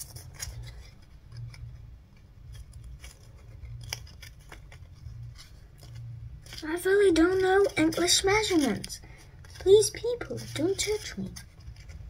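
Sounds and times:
low hum: 0:00.0 - 0:12.0
paper and cardboard crinkling: 0:00.0 - 0:12.0.

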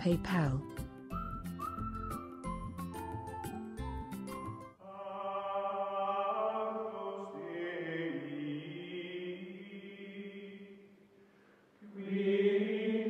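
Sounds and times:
chant-like choral chords: 0:04.8 - 0:11.0, 0:11.8 - 0:13.0.

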